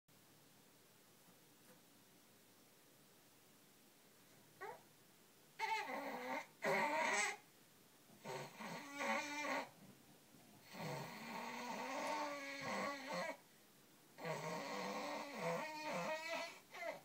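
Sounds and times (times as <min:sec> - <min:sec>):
baby growling: 0:05.6 - 0:07.4, 0:08.2 - 0:09.7, 0:10.7 - 0:13.4, 0:14.2 - 0:17.0.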